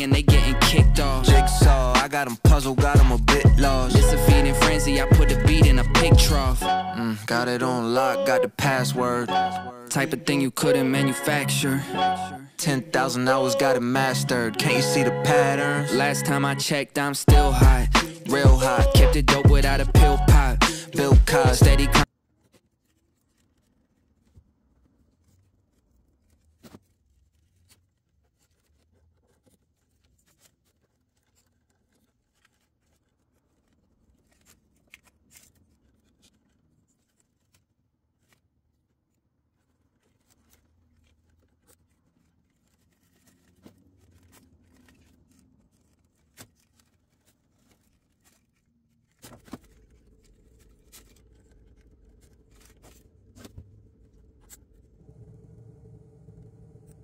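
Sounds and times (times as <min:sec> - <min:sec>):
steady low hum: 0:55.0 - 0:57.0.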